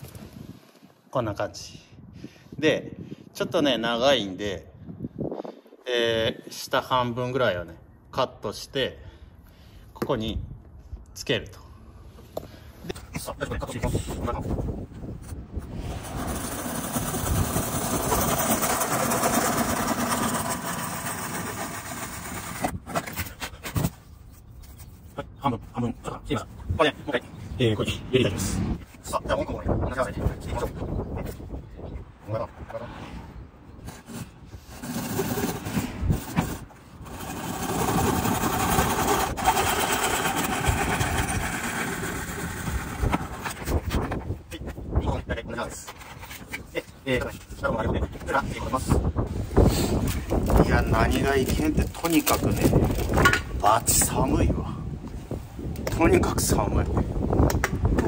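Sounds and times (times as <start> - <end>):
hand saw cutting: 16.0 - 22.8, 36.4 - 43.5
vehicle passing: 27.6 - 28.8, 32.5 - 33.7.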